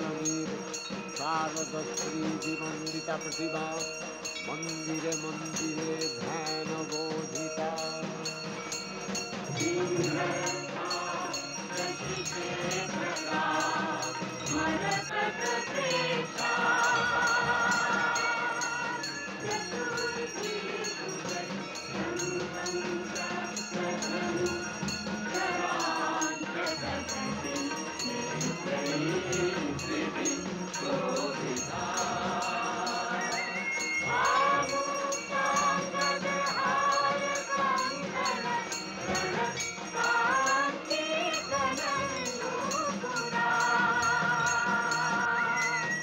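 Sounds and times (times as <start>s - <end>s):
chorus singing devotional music: 0.0s - 46.0s.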